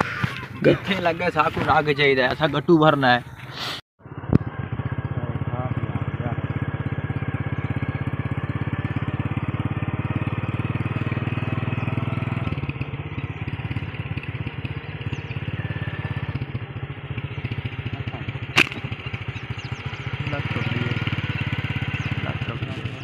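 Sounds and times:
small engine running: 0:04.0 - 0:23.0
slingshot snap: 0:18.6 - 0:18.8.

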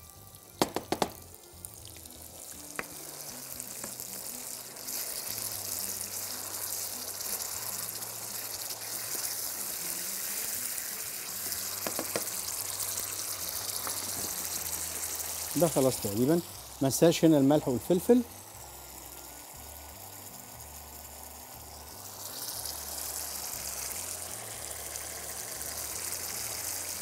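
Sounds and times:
sauce sizzling in a frying pan: 0:00.0 - 0:27.0
sharp knocks: 0:00.6 - 0:01.2.

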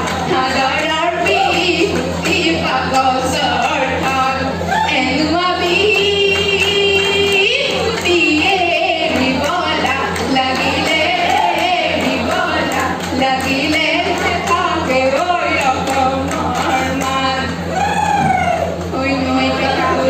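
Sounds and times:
women singing folk song: 0:00.0 - 0:17.7, 0:18.9 - 0:20.0
hand clapping: 0:05.7 - 0:17.6.

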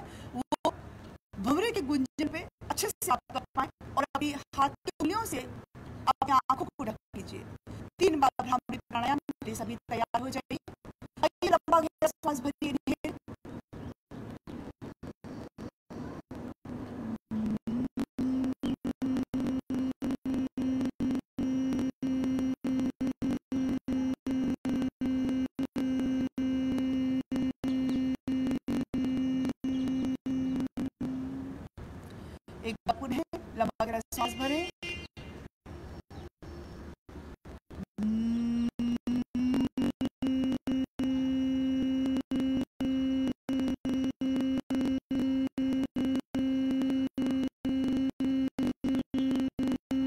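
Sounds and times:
woman humming: 0:17.0 - 0:18.5, 0:29.2 - 0:31.6, 0:37.8 - 0:39.8.

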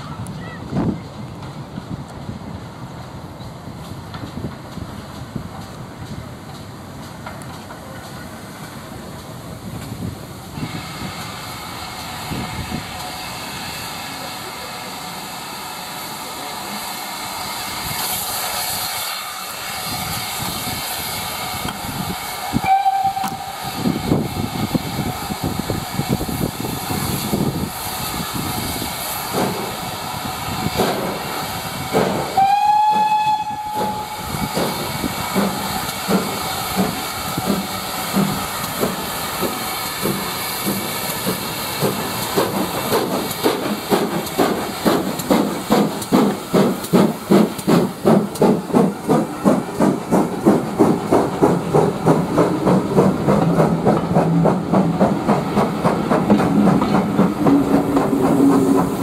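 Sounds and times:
steam hissing: 0:03.0 - 0:59.0
steam whistle: 0:22.6 - 0:23.6, 0:32.4 - 0:34.3.

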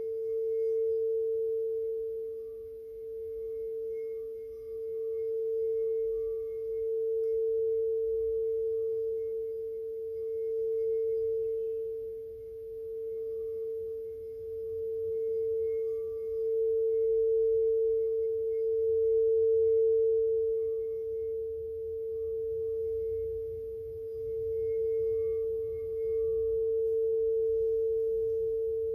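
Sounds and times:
singing bowl pure tone: 0:00.0 - 0:28.9.

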